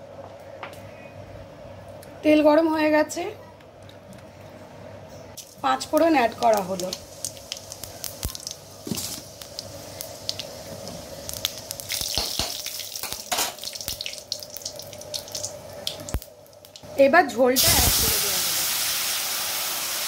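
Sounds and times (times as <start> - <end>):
seeds sizzling and popping in oil: 5.4 - 16.9.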